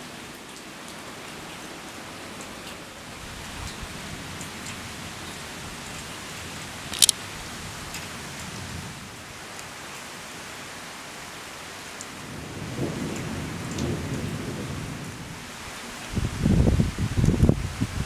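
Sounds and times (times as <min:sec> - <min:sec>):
steady rain falling: 0:00.0 - 0:18.0
sharp tick: 0:06.9 - 0:07.2
low thunder rumbling: 0:12.2 - 0:15.4.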